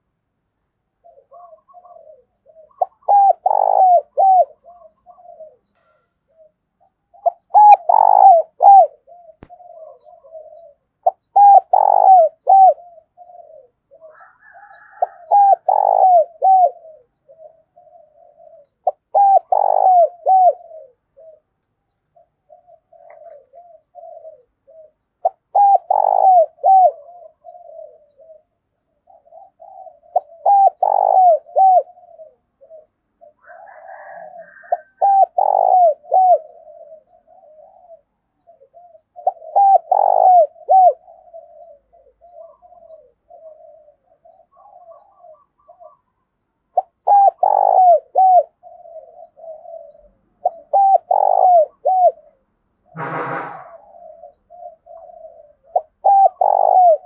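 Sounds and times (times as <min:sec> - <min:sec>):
dove cooing: 0:01.0 - 0:57.0.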